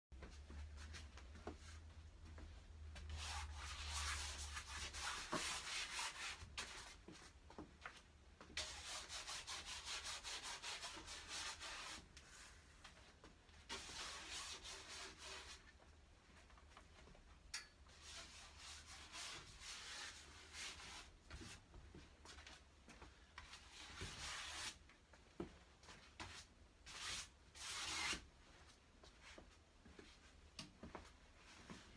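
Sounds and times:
paintbrush scrubbing canvas: 3.2 - 7.0, 8.6 - 12.6, 13.7 - 15.6, 18.0 - 21.1.

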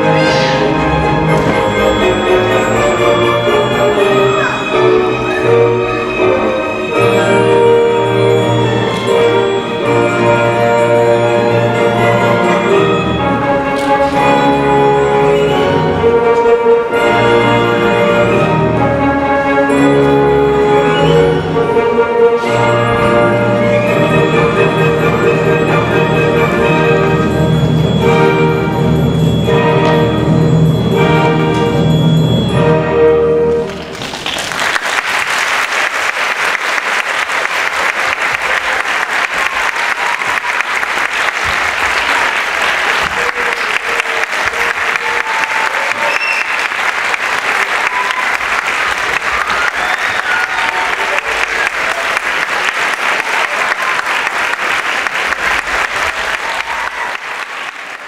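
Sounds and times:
classical orchestral music: 0.0 - 58.0
audience applauding: 33.6 - 58.0.

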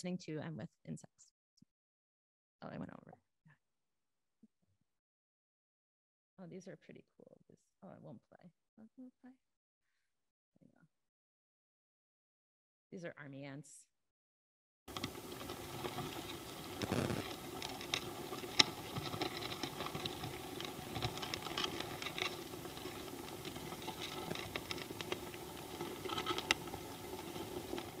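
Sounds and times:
ants pattering over leaf litter: 14.9 - 28.0.

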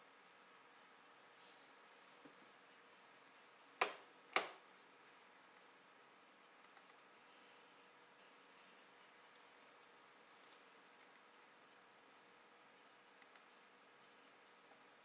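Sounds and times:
sharp computer clicks: 3.8 - 4.6, 6.6 - 7.1, 13.2 - 13.6.

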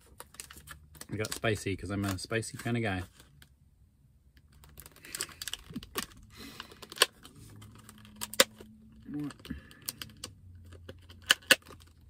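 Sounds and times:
plastic snapping: 9.3 - 11.9.

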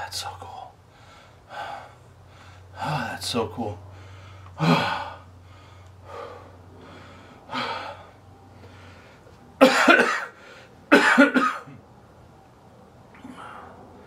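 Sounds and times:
man breathing heavily: 0.8 - 9.6, 10.3 - 10.9, 13.2 - 14.0
man coughing hard: 9.6 - 11.8.

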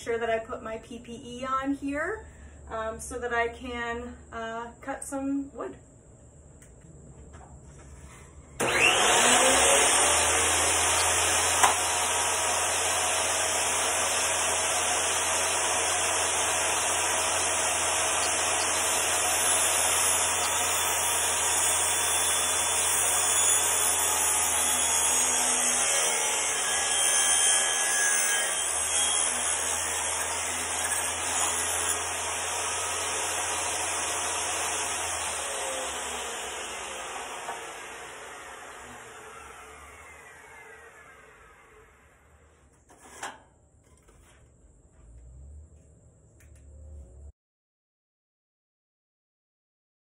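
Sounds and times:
table saw cutting plywood: 8.1 - 43.5.

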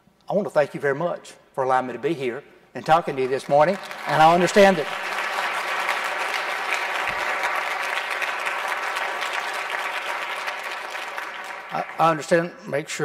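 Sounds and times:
audience applauding: 2.9 - 12.6.

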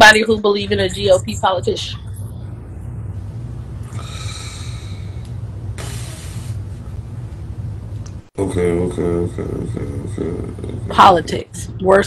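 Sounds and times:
steady low hum: 0.0 - 12.0
breaths into microphone: 3.8 - 5.2, 5.8 - 6.8.

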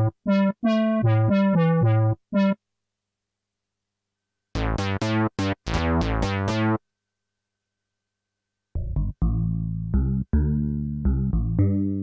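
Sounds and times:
plucky synthesizer bass notes: 0.0 - 2.6, 4.6 - 6.8, 8.8 - 12.0.

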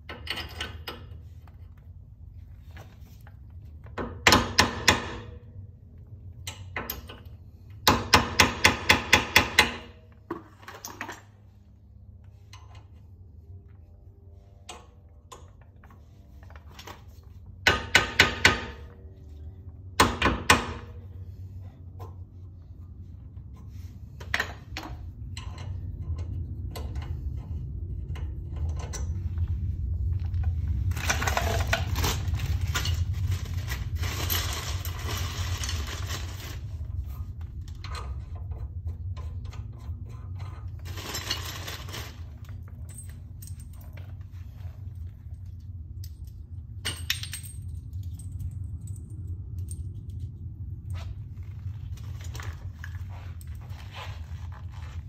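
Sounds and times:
metal studs clinking and rattling: 0.0 - 1.6, 6.4 - 11.5, 30.8 - 38.6, 39.4 - 51.0.

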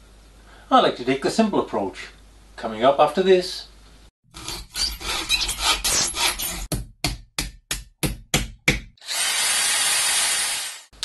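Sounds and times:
tool scraping and rubbing: 4.3 - 6.7
power tool whining: 9.0 - 10.9.

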